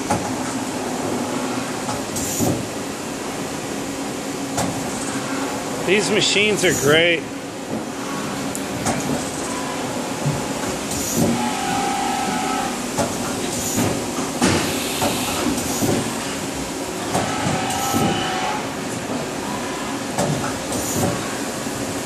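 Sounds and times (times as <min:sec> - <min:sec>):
machine clunks and clicks: 0:04.5 - 0:04.8, 0:08.8 - 0:09.3, 0:13.0 - 0:16.1, 0:20.1 - 0:21.3
lathe machine hum: 0:05.2 - 0:19.9
brief machine whines: 0:17.2 - 0:18.6.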